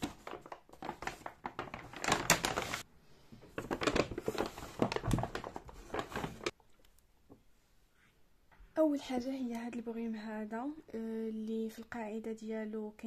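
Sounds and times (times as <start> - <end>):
paper bag rustling and crinkling: 0.0 - 6.6.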